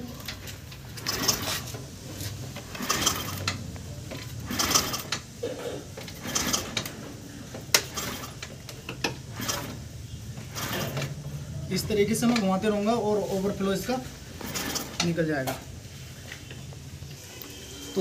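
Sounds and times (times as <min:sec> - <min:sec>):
engine cranked by hand clicking: 0:00.1 - 0:12.8, 0:14.2 - 0:15.3.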